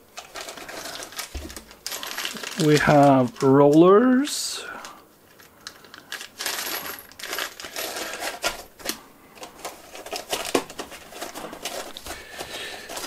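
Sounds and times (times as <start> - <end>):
plastic bag rustling: 0.0 - 4.4, 5.2 - 13.0
metal hardware clinking in bag: 5.7 - 8.7.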